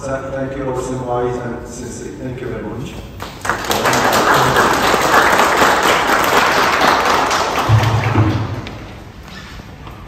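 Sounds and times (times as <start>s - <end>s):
people applauding: 3.2s - 8.8s.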